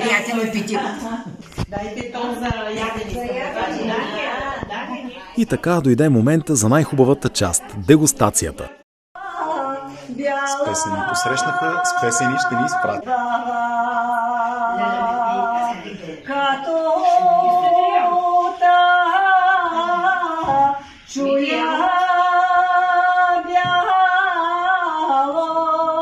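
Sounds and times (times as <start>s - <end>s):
woman singing unaccompanied: 9.2s - 26.0s.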